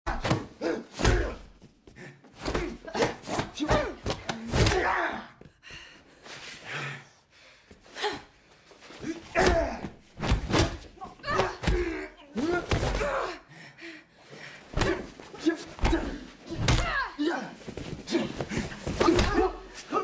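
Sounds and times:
men grunting and shouting: 0.1 - 5.5, 9.0 - 13.5, 14.6 - 20.0.

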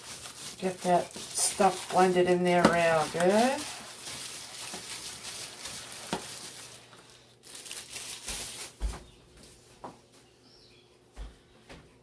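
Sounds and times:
plastic glove crinkling: 0.0 - 9.0.

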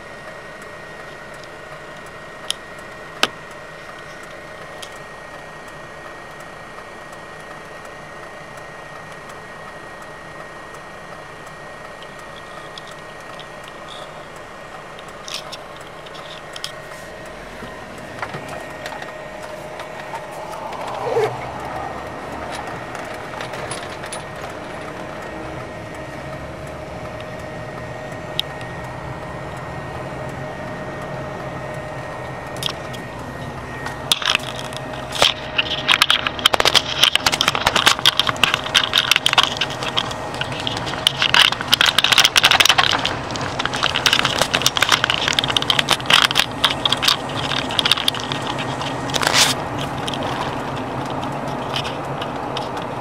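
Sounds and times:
vehicle rumble: 0.0 - 53.0
crackling clatter of impacts: 33.8 - 53.0.

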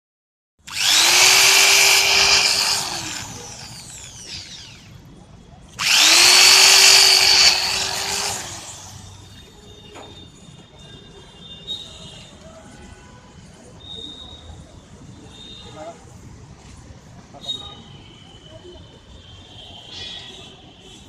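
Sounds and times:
electric drill drilling metal: 0.6 - 5.0, 5.7 - 9.0.

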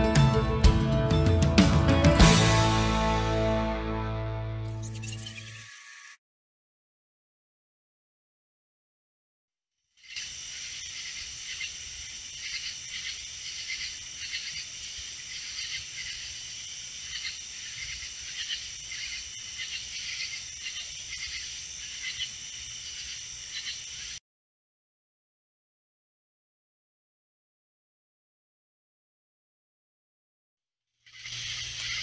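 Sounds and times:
crickets chirping: 10.0 - 24.2, 31.0 - 32.0.

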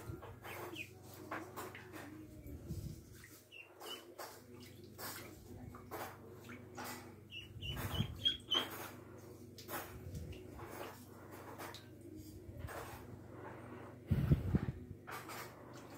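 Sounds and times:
ducklings peeping: 0.2 - 1.0, 3.2 - 5.3, 6.4 - 8.8.

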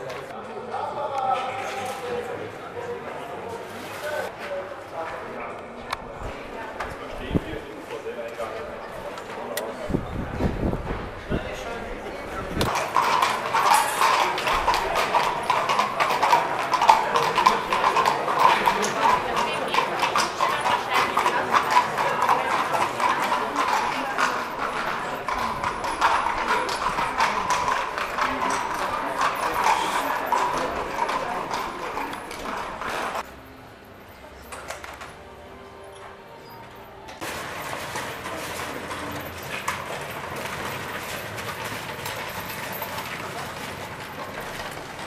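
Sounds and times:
horse hooves clip-clopping on street: 10.6 - 33.3, 37.1 - 45.0
clattering footsteps: 36.0 - 45.0.

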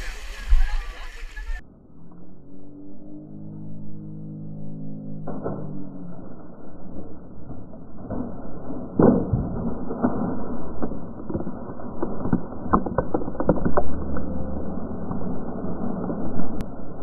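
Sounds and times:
people splashing through water: 0.0 - 1.6
sharp knocks and clatters: 8.1 - 11.5.

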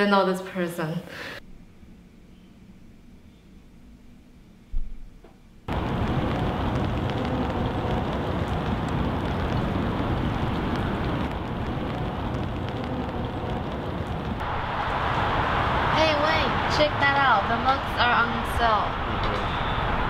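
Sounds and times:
rain-like street hiss: 5.7 - 20.0.

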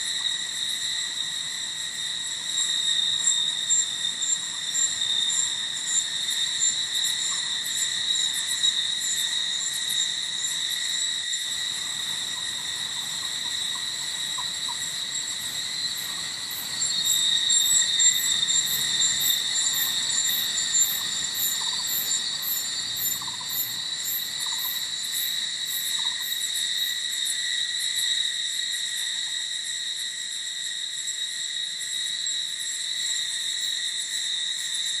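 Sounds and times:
insect chirping in pulses: 0.0 - 35.0
insects droning: 0.0 - 35.0.

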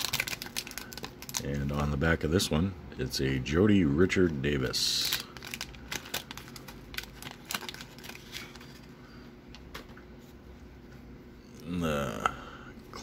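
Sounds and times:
wax paper wrapper crackling: 0.0 - 2.0, 4.3 - 8.9.

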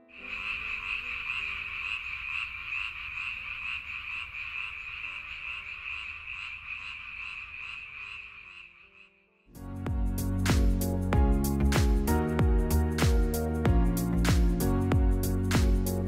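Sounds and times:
frogs croaking: 0.0 - 9.6.

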